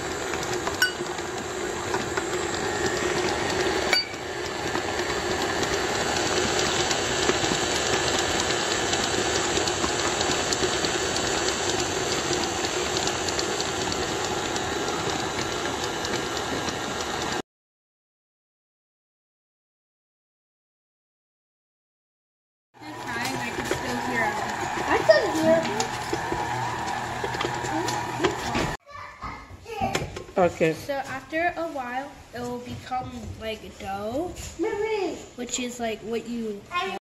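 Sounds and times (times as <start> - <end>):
stand mixer running: 0.0 - 17.4, 22.8 - 28.8.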